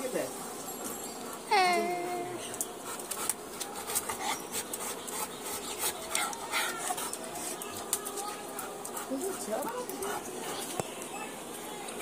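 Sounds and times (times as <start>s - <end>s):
dog panting: 2.2s - 10.8s.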